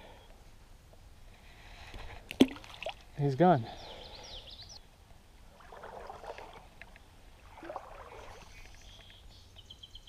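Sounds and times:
stream water swishing: 0:02.2 - 0:03.2, 0:05.4 - 0:09.3
bird chirping: 0:03.6 - 0:04.9, 0:08.0 - 0:10.0.

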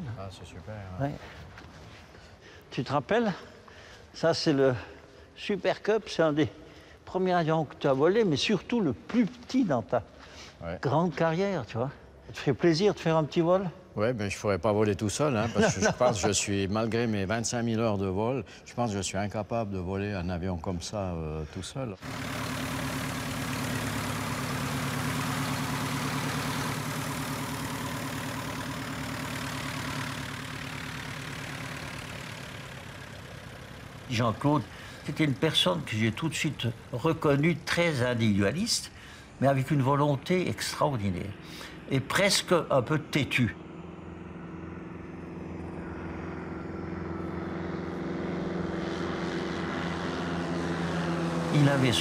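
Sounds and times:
light aircraft engine droning: 0:11.2 - 0:52.0.

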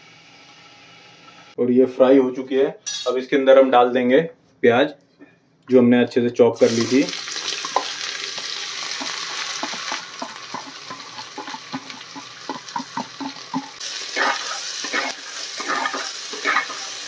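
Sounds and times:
onions sizzling in hot oil: 0:06.6 - 0:17.0.

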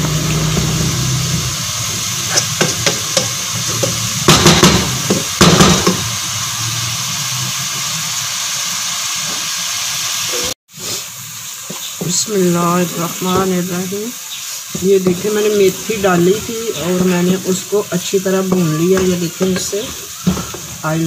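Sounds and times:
leaves sizzling in oil: 0:00.0 - 0:21.0
wooden spatula scraping a pot: 0:14.5 - 0:21.0.

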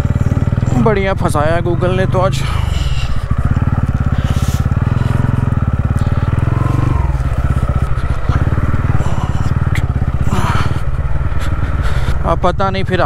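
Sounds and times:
motorcycle engine running: 0:00.0 - 0:13.0.

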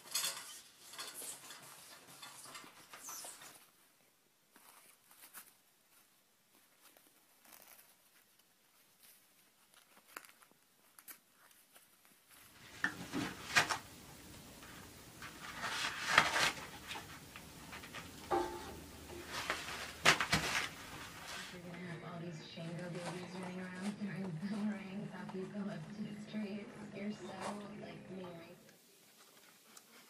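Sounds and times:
toilet paper tearing and rustling: 0:12.5 - 0:21.6
sharp knocks: 0:18.0 - 0:21.0.

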